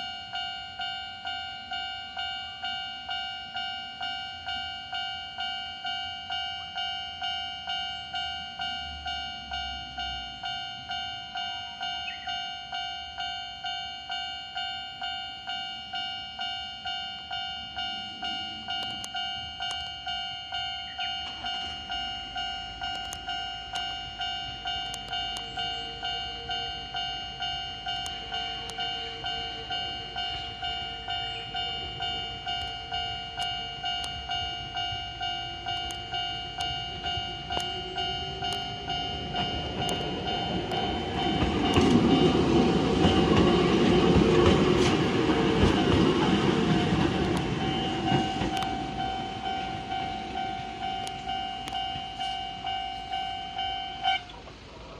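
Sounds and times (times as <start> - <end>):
level-crossing alarm ringing: 0.0 - 54.9
train rumble and wheel clicks: 0.0 - 54.9.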